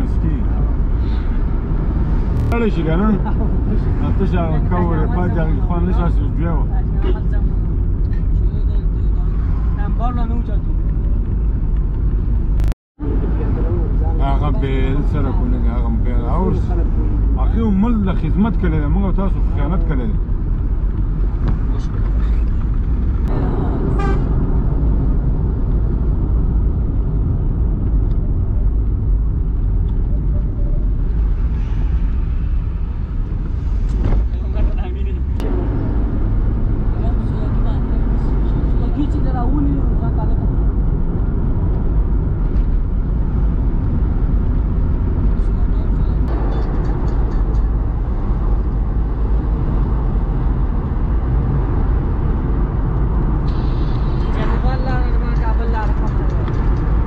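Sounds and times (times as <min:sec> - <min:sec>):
car engine and road rumble: 0:00.0 - 0:57.0.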